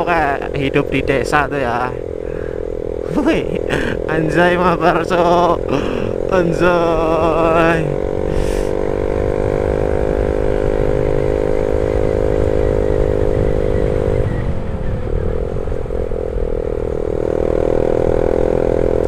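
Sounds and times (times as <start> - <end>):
motorcycle engine cruising: 0.0 - 19.0
wind noise rumble: 9.2 - 18.4.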